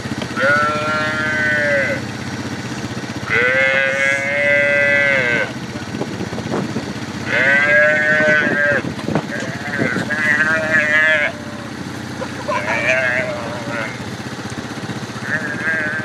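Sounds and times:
calf bawling: 0:00.4 - 0:02.0, 0:03.2 - 0:05.6, 0:07.2 - 0:14.0, 0:15.2 - 0:16.0.

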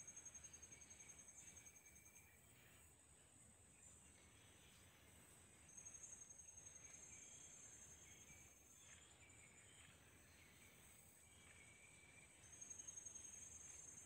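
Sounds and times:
high-pitched insect trill: 0:12.4 - 0:14.0.

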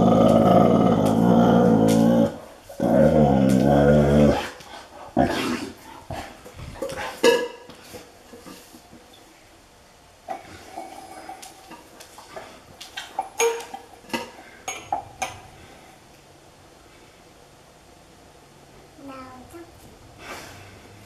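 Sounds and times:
dog growling low: 0:00.0 - 0:05.8.

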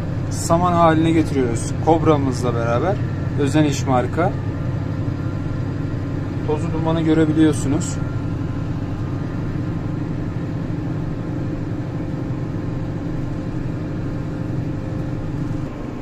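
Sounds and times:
tractor engine and chopper droning: 0:00.0 - 0:16.0.

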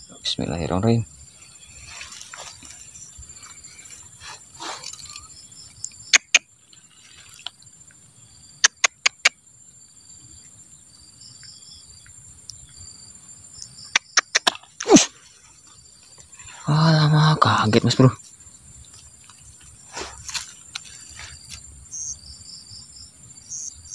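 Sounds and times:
faint insect chirping: 0:00.0 - 0:23.9
sharp clicks: 0:08.6 - 0:09.4, 0:13.9 - 0:15.1.

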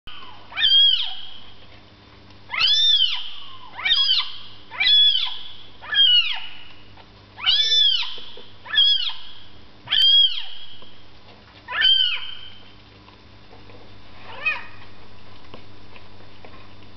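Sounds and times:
cat meowing: 0:02.5 - 0:05.3, 0:07.4 - 0:09.2, 0:11.7 - 0:12.3.

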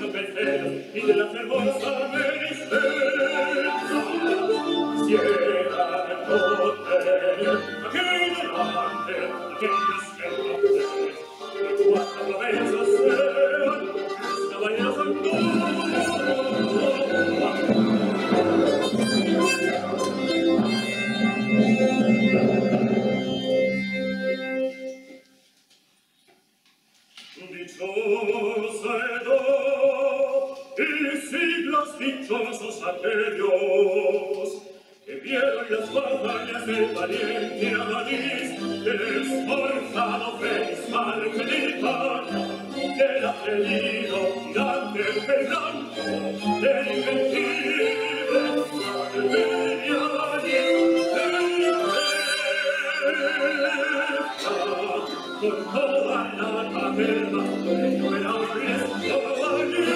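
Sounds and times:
opera singing: 0:00.0 - 0:21.1, 0:27.4 - 0:59.9
instrumental accompaniment: 0:00.0 - 0:25.5.

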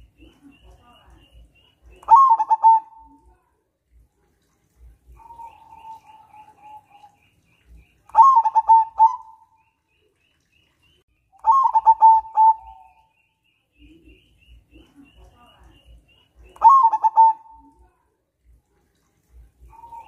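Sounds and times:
dove cooing: 0:02.0 - 0:03.2, 0:05.1 - 0:07.2, 0:08.1 - 0:09.5, 0:11.4 - 0:13.1, 0:16.5 - 0:17.8, 0:19.6 - 0:20.0.

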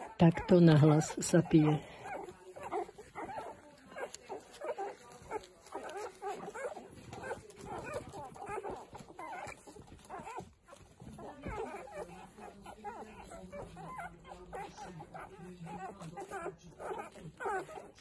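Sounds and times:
puppies squeaking and whimpering: 0:00.0 - 0:18.0
puppies suckling and gulping: 0:00.0 - 0:18.0.

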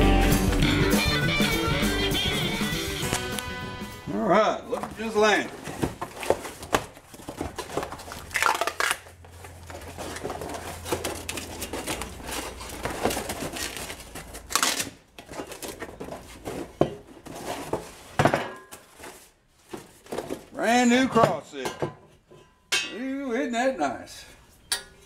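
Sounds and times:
cardboard tearing and crumpling: 0:04.8 - 0:18.2.

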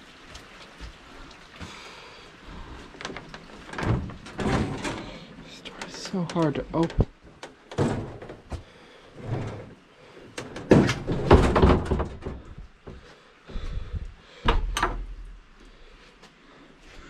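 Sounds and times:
metal door scraping and rattling: 0:03.1 - 0:06.6, 0:07.7 - 0:08.5, 0:09.1 - 0:09.8, 0:10.4 - 0:12.6.

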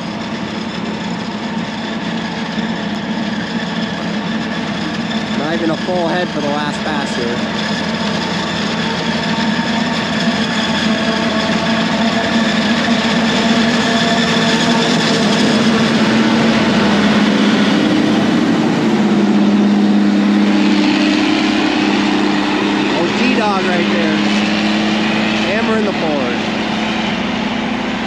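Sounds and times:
heavy diesel engine drone: 0:00.0 - 0:28.0
forage harvester chopping corn: 0:05.2 - 0:18.4, 0:19.1 - 0:28.0.

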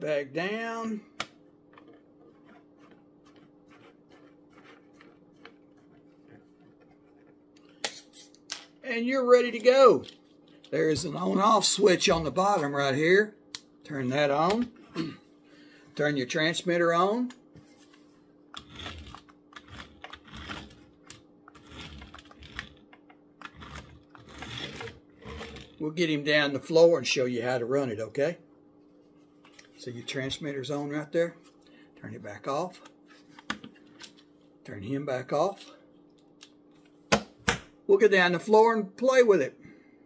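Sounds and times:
toy truck motor and gears whirring: 0:18.6 - 0:22.8, 0:23.4 - 0:25.8.

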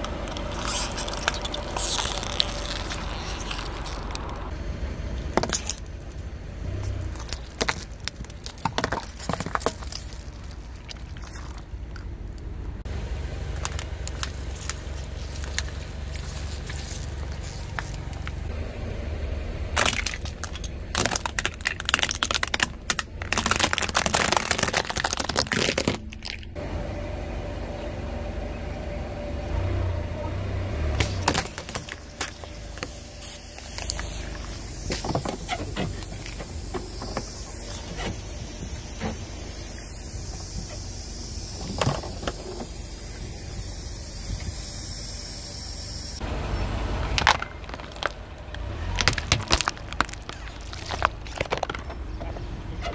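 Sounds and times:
tyre crushing plastic: 0:00.0 - 0:04.5, 0:06.8 - 0:12.1, 0:13.5 - 0:18.5, 0:19.8 - 0:26.5, 0:31.0 - 0:39.4, 0:47.1 - 0:52.2.

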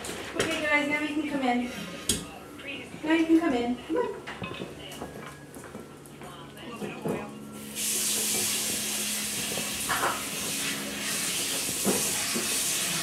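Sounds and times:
steady hiss: 0:07.6 - 0:12.7.

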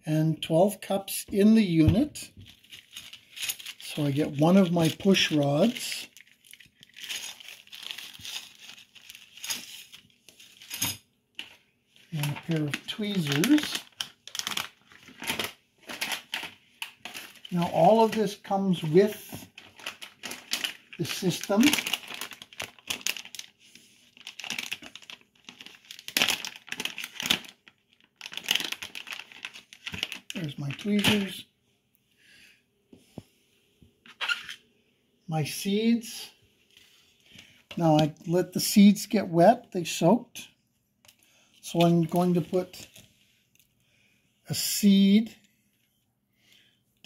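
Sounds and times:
plastic packaging rustling: 0:01.9 - 0:10.8, 0:11.4 - 0:31.4, 0:41.1 - 0:43.6
plastic bag crinkling and tearing: 0:02.4 - 0:10.8, 0:11.4 - 0:31.4.

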